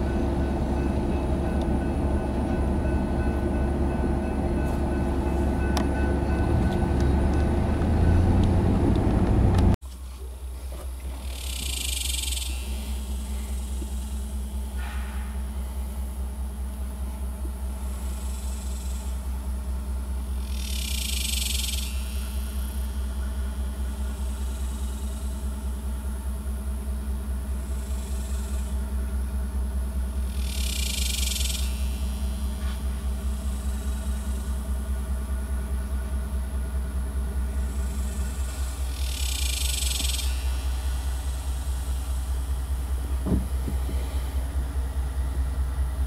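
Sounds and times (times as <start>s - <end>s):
engine idling: 10.4s - 46.0s.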